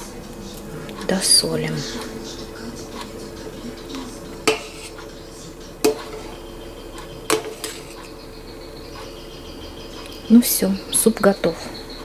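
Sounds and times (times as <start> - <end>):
metal spoon stirring in pot: 2.8 - 10.2
spoon knocking against pot: 4.4 - 5.2, 5.8 - 8.2.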